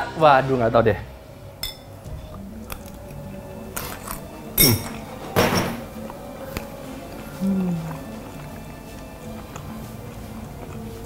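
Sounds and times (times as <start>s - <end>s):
spoons clinking on ceramic bowls: 1.6s - 2.0s, 3.8s - 5.7s.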